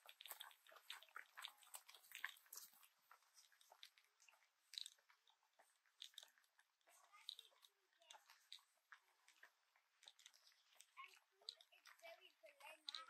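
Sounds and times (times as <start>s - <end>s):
footsteps crunching on track: 0.0s - 7.2s.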